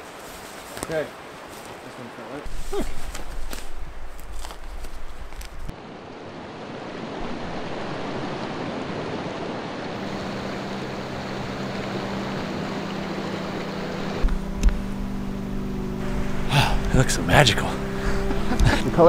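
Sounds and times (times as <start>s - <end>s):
river water rushing: 0.0s - 19.0s
low steady tone: 10.0s - 19.0s.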